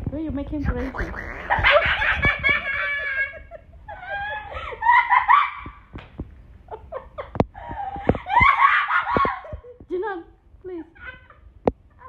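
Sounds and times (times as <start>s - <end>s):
parrot mimicking laughter: 0.6s - 2.5s.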